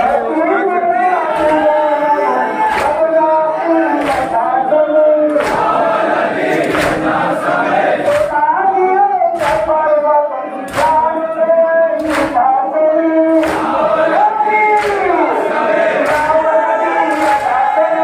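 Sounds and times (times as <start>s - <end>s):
men chanting a lament: 0.0s - 18.0s
hands beating chests: 2.6s - 3.2s, 4.0s - 4.6s, 5.3s - 5.9s, 6.5s - 7.3s, 8.0s - 8.5s, 9.3s - 9.8s, 10.7s - 11.2s, 12.0s - 12.5s, 13.3s - 18.0s.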